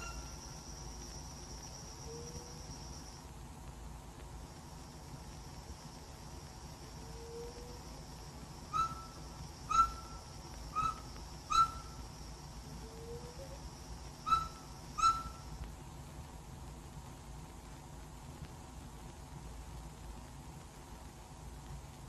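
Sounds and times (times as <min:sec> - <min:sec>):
bird whistling short notes: 0:08.7 - 0:12.0, 0:14.3 - 0:15.4.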